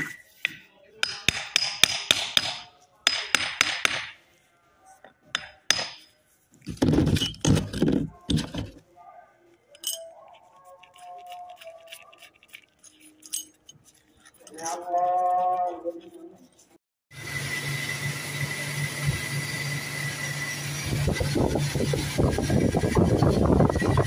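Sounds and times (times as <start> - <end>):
hammer striking metal: 0.4 - 4.2, 5.3 - 6.2.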